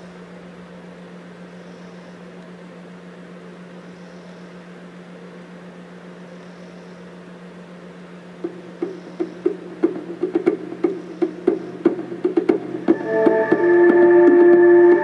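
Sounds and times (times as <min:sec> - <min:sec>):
constant hiss: 0:00.0 - 0:15.0.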